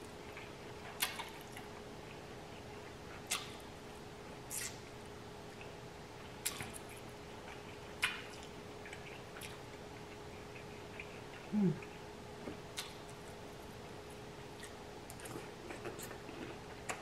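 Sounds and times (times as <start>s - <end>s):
faint steady hum: 0.0s - 17.0s
wet mouth smacks and clicks: 3.3s - 3.6s, 4.5s - 4.8s, 12.7s - 13.0s.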